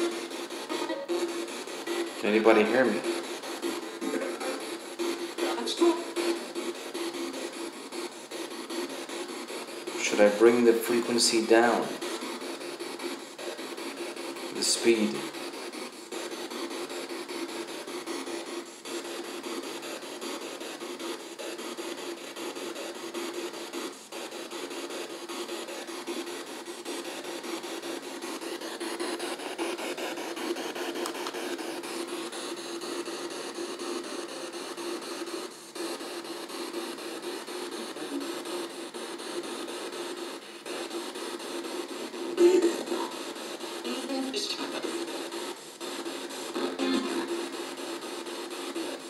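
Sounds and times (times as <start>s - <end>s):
radio static hiss: 0.0s - 49.0s.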